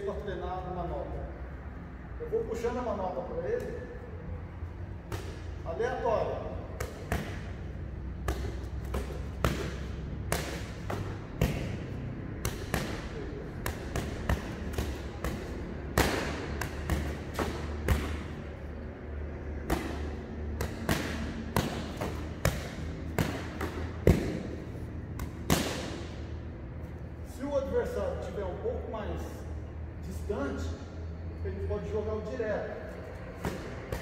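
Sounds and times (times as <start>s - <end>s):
boxing gloves smacking focus mitts: 5.0s - 5.6s, 6.6s - 18.5s, 19.6s - 26.2s.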